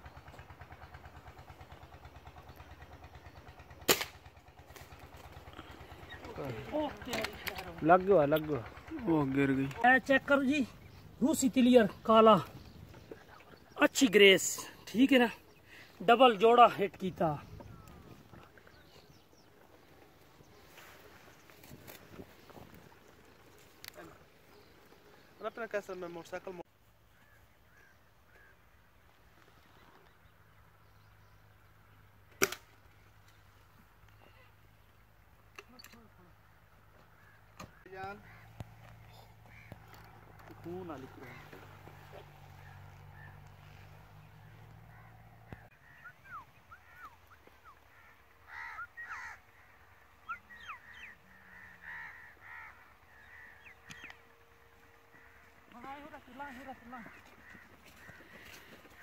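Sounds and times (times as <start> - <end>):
air rifle shot: 3.9 - 4.2
small birds chirping: 4.5 - 59.0
harsh crow-like caws: 27.1 - 28.9, 36.9 - 46.1, 46.8 - 59.0.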